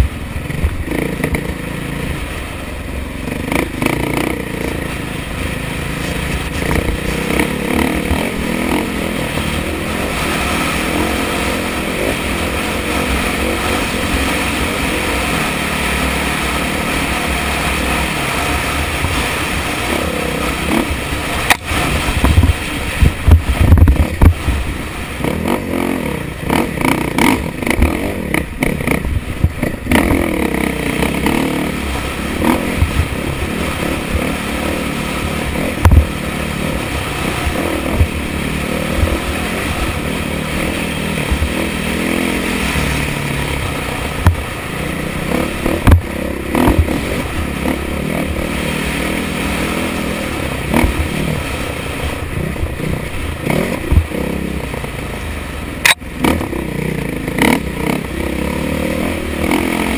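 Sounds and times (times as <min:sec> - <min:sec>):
motorcycle engine running: 0:00.0 - 0:59.9
knocks and clatter over rough ground: 0:03.3 - 0:14.4, 0:17.0 - 0:25.6, 0:26.4 - 0:34.4, 0:35.3 - 0:36.2, 0:44.1 - 0:44.6, 0:45.3 - 0:48.3.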